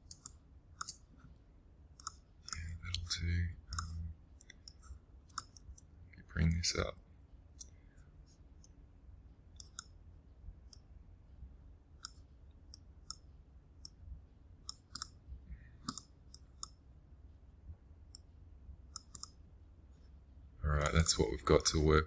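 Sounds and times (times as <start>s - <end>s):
computer mouse clicks: 0.0s - 1.1s, 2.0s - 3.1s, 3.7s - 5.9s, 9.6s - 10.0s, 12.0s - 14.0s, 14.6s - 15.2s, 15.8s - 16.8s, 18.9s - 19.4s
low steady hum: 0.0s - 22.0s.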